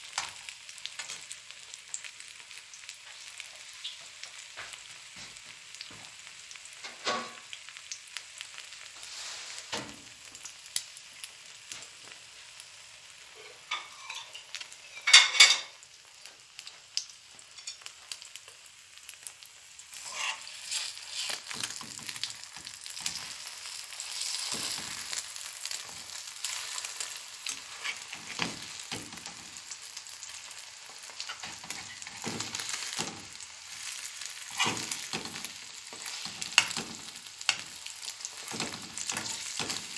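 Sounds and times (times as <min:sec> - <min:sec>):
eggs sizzling in a frying pan: 0:00.0 - 0:39.9
metal spoon scraping pan: 0:13.5 - 0:15.7, 0:19.9 - 0:21.9, 0:27.5 - 0:29.4, 0:34.5 - 0:39.8.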